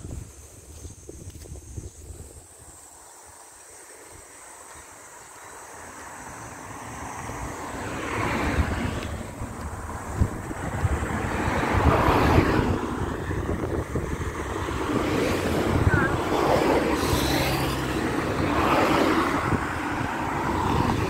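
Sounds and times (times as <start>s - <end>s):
wind buffeting microphone: 0.0s - 2.9s, 7.1s - 21.0s
cars passing on road: 0.0s - 21.0s.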